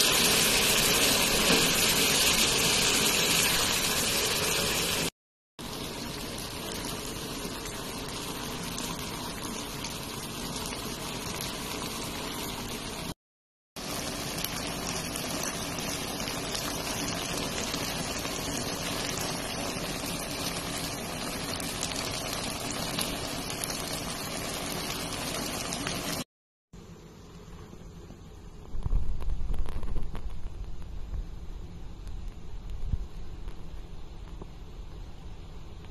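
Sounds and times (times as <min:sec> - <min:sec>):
gas burner noise: 0:00.0 - 0:13.2, 0:13.8 - 0:26.3
pasta simmering in a pan: 0:00.0 - 0:13.2, 0:13.8 - 0:26.3.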